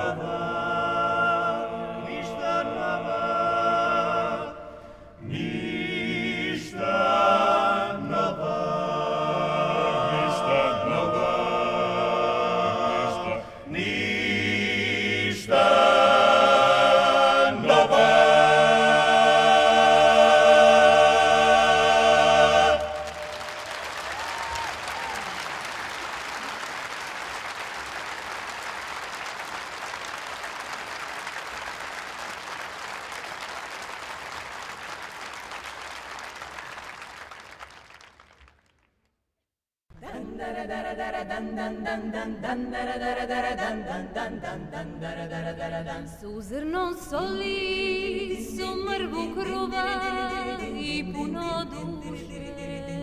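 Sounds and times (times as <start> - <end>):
a cappella choir singing: 0.0 - 24.6, 39.9 - 53.0.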